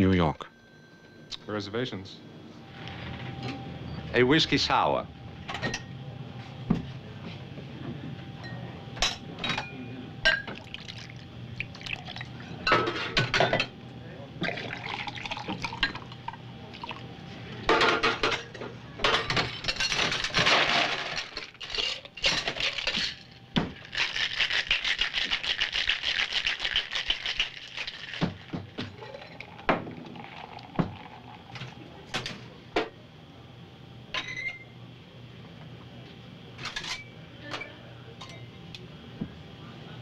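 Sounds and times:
liquid pouring into a glass: 0:10.6 - 0:12.4, 0:14.4 - 0:17.0, 0:29.0 - 0:32.0
ice rattling in a cocktail shaker: 0:23.8 - 0:31.7.

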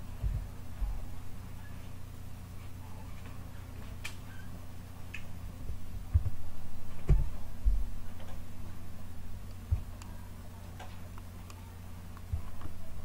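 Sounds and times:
low electrical hum: 0:00.0 - 0:13.0
dull low thumps: 0:00.2 - 0:01.2.

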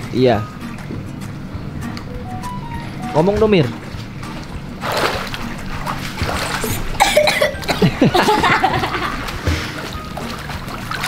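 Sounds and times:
water splashing in pool: 0:03.5 - 0:11.0.

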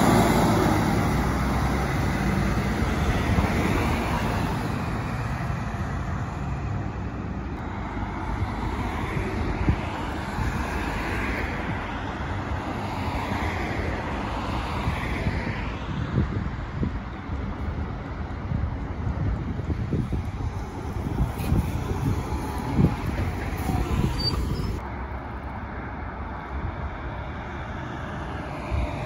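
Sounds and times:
bus engine pulling away: 0:00.0 - 0:12.6
wind buffeting microphone: 0:00.0 - 0:25.0
cars passing: 0:00.0 - 0:29.0.

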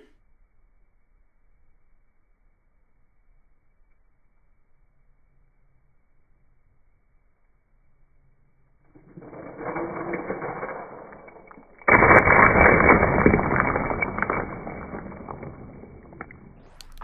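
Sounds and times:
ice and candies clattering: 0:09.0 - 0:17.0.

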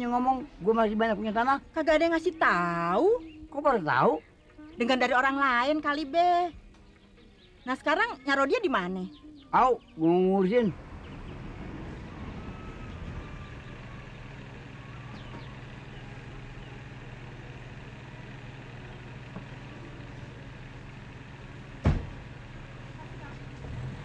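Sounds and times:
car engine idling: 0:00.0 - 0:24.0
car door shutting: 0:21.8 - 0:22.3.

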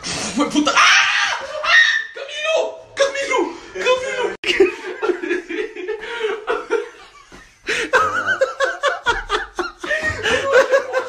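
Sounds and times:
laughter in rhythmic bursts: 0:04.4 - 0:11.0.

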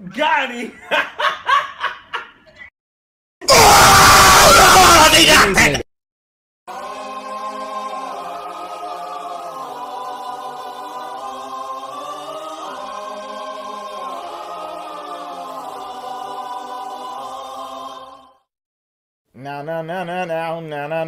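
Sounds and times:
choir holding a chord: 0:06.7 - 0:18.5.

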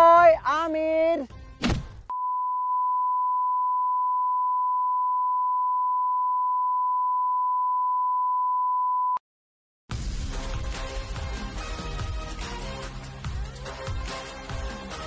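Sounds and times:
music: 0:00.0 - 0:01.8, 0:09.9 - 0:15.0
electronic beep tone: 0:02.1 - 0:09.2.

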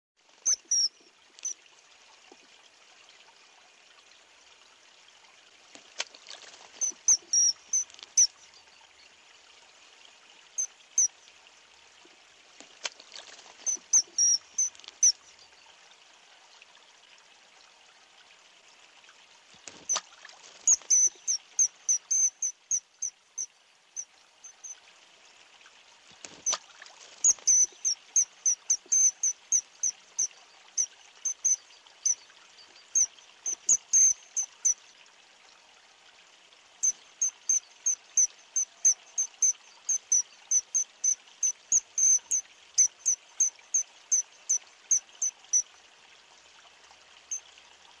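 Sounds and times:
kingfisher shrill calls: 0:00.5 - 0:01.6, 0:06.8 - 0:08.3, 0:13.7 - 0:15.2, 0:20.7 - 0:23.5, 0:27.2 - 0:29.9, 0:33.0 - 0:34.8, 0:36.8 - 0:44.6.

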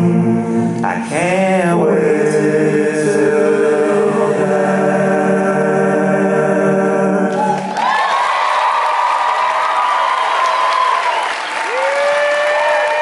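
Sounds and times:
male choir singing a chord: 0:00.0 - 0:07.6
applause: 0:07.3 - 0:13.0.

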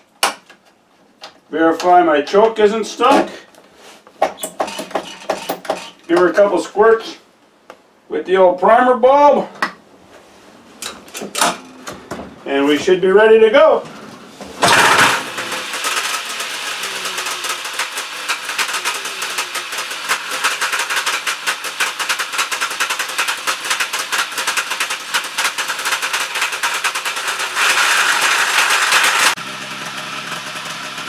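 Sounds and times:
two-stroke engine popping: 0:14.6 - 0:31.0.

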